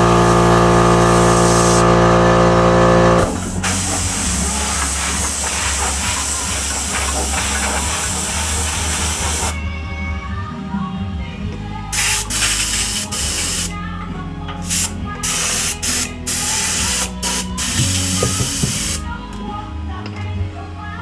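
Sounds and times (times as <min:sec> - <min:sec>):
music playing: 0:00.0 - 0:21.0
aerosol spray can hissing: 0:03.6 - 0:09.6, 0:12.0 - 0:13.7, 0:14.7 - 0:19.0.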